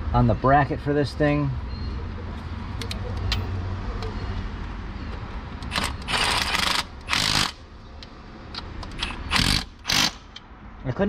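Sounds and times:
cordless driver spinning bolts: 5.6 - 7.6, 8.8 - 10.2.

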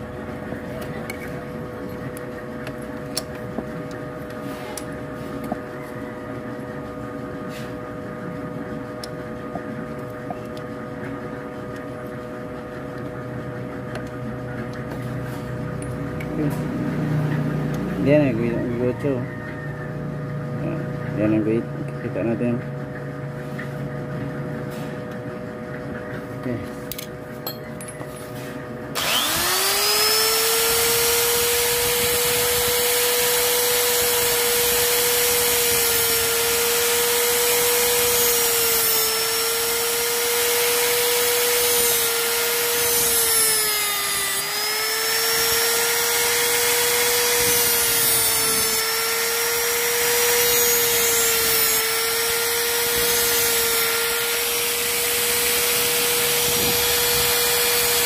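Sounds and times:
rotary tool grinding metal: 29.0 - 58.0.

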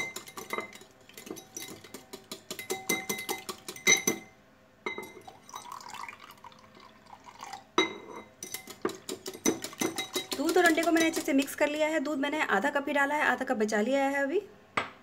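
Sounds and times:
whisk clinking against glass bowl: 0.0 - 5.9, 7.8 - 11.5
milk pouring into bowl: 5.2 - 7.8.

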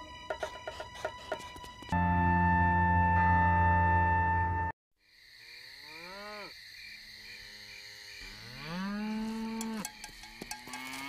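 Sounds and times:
crickets chirping: 5.0 - 11.0.

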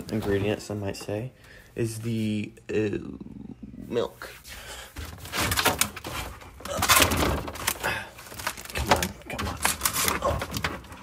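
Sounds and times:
plastic containers clattering: 0.0 - 1.3, 4.9 - 11.0.

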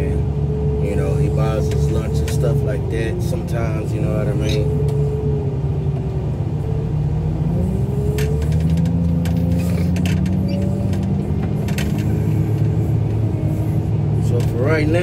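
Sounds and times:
loader engine running under load: 0.0 - 15.0
metal clanks and rattles: 8.1 - 12.7.

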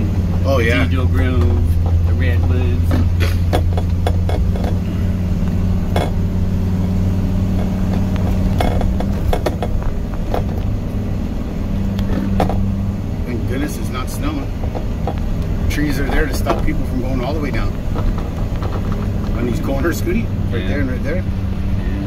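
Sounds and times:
vehicle engine and road drone: 0.0 - 22.0
something rattling: 1.2 - 11.1, 13.5 - 20.4.

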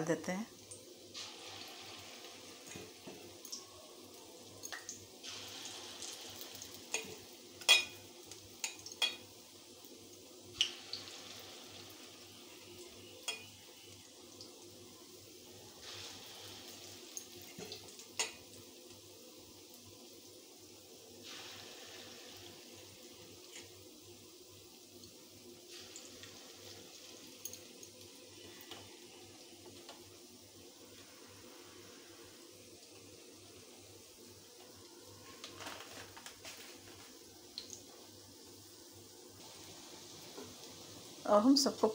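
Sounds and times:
fritters sizzling in hot oil: 0.0 - 41.9
sharp cracks of frying oil: 4.6 - 9.4, 10.5 - 11.1, 17.6 - 18.6.

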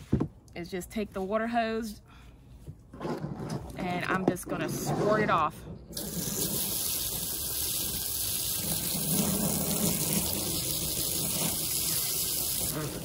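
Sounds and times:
hose nozzle spraying water: 6.0 - 13.0.

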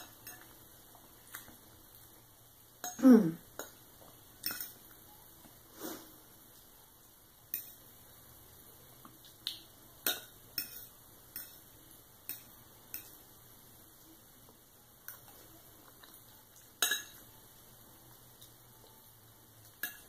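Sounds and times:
fork clinking on a plate: 4.4 - 4.8, 10.0 - 11.6, 16.8 - 17.3.

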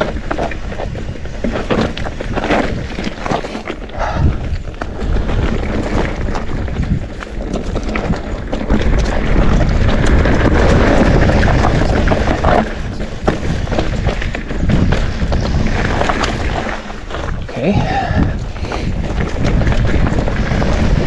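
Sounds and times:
bike clacking and rattling: 0.0 - 21.0
bike tyre noise: 0.0 - 21.0
wind rushing over microphone: 0.0 - 21.0.

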